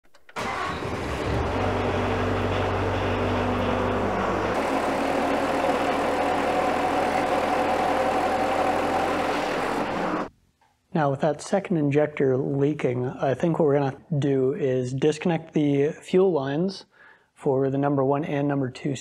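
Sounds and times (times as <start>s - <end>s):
diesel engine idling: 0.4s - 10.3s.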